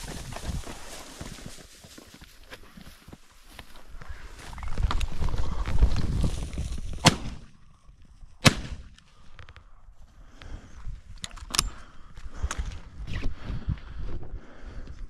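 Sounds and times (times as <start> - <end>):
wind buffeting microphone: 3.8 - 7.5
shotgun shots: 7.0 - 7.5, 8.4 - 8.9.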